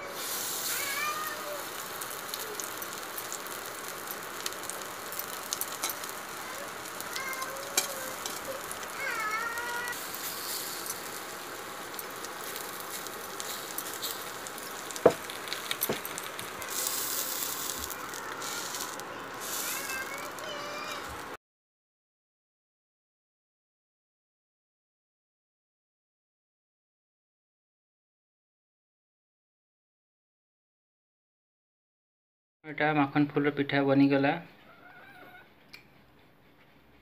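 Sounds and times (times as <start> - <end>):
fritters sizzling in oil: 0.0 - 21.4
cat meowing: 0.6 - 2.7, 6.5 - 10.0, 34.7 - 35.5.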